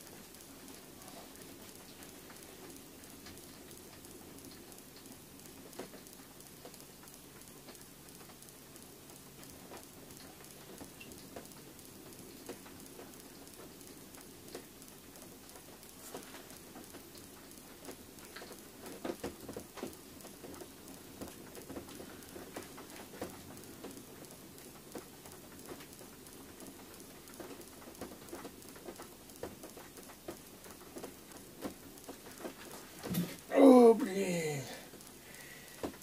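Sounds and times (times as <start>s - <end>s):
faint ticking and patter: 0.0s - 36.0s
low steady hum: 0.0s - 36.0s
knocks and rustles: 32.1s - 33.5s.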